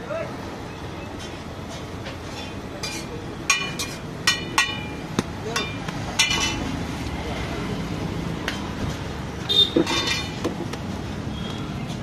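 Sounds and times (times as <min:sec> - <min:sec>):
metal spatula scraping on griddle: 0:02.2 - 0:04.8, 0:09.8 - 0:10.4.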